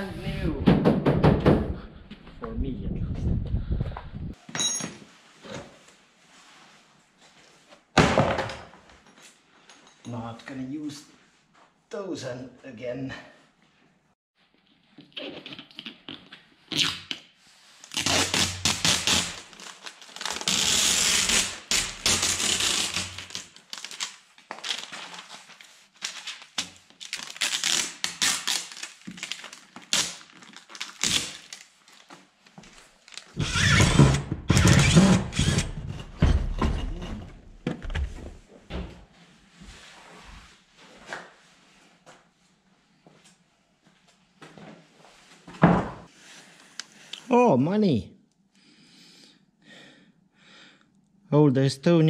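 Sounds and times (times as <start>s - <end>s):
tint film crackling and tearing: 17.8s - 32.1s.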